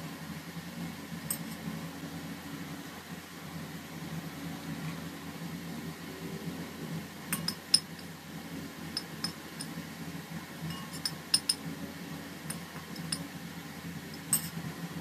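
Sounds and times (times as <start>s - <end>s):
steady low hum: 0.0s - 15.0s
kitchenware clinking: 7.3s - 8.0s, 10.7s - 11.6s, 14.2s - 14.6s.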